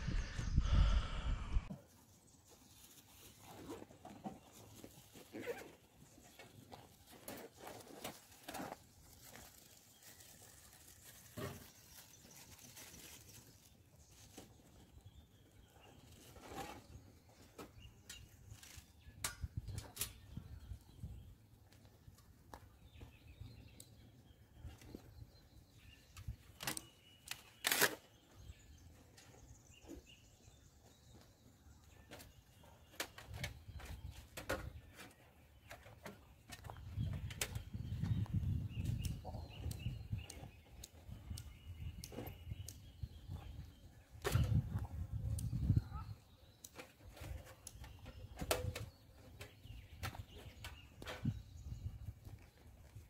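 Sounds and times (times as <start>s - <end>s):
faint low rumble: 0.0s - 1.7s.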